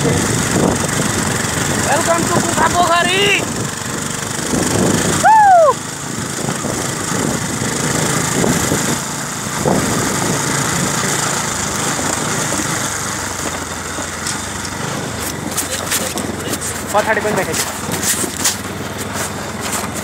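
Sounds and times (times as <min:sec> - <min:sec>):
wind noise: 0:00.0 - 0:13.8
motorcycle engine running: 0:00.0 - 0:20.0.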